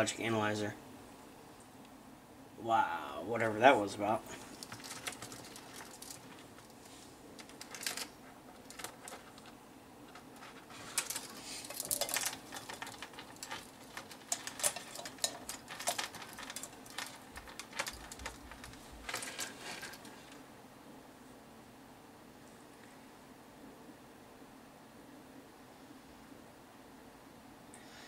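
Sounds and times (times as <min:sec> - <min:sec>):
small plastic and metal parts rattling: 0:04.3 - 0:20.4.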